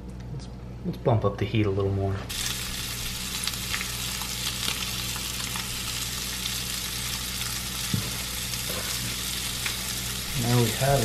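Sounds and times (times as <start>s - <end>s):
fish sizzling in oil: 2.3s - 11.0s.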